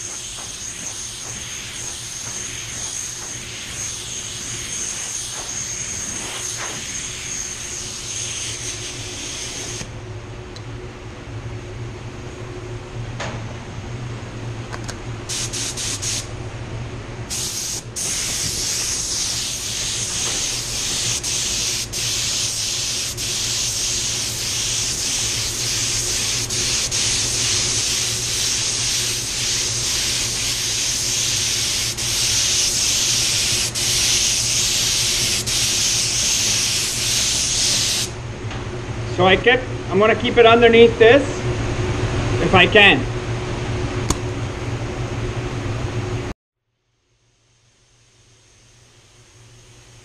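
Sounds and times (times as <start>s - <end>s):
spray gun air hissing: 0.0s - 9.9s, 15.3s - 16.3s, 17.3s - 38.2s
ventilation hum: 0.0s - 50.0s.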